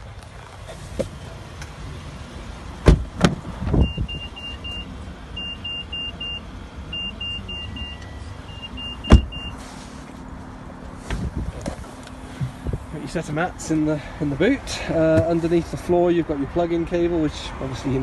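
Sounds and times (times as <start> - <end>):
car door latch clicks: 2.8 - 3.8, 9.0 - 9.4
car door shutting thump: 2.8 - 3.9, 9.0 - 9.4
high-pitched car chime beeps: 3.8 - 9.6.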